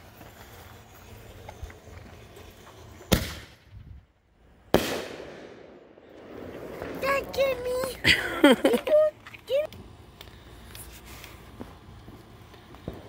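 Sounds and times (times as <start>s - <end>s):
firework launching pop: 3.1s - 3.6s
firework bursting bang: 3.1s - 3.7s, 4.7s - 7.8s
firework hiss: 6.3s - 8.7s, 9.4s - 13.0s.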